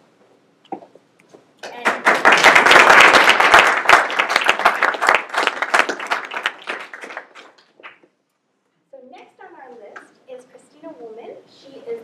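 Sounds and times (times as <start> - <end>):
audience applauding: 1.6 - 8.0.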